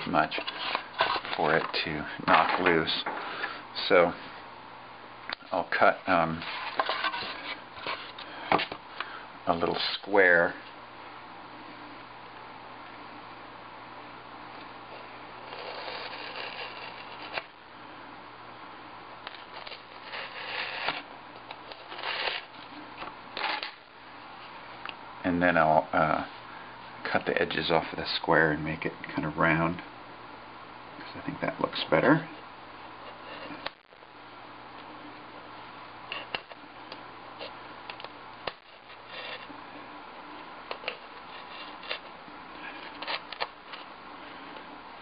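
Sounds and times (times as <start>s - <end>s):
steady low hum: 0.0s - 45.0s
razor blade cutting foam board: 15.4s - 17.5s, 19.6s - 21.0s, 21.7s - 22.5s.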